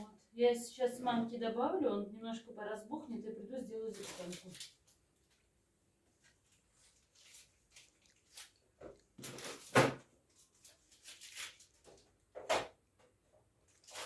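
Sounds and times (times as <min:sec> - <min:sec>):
packaging rustling: 0:03.9 - 0:05.4, 0:06.2 - 0:12.2, 0:13.7 - 0:14.0.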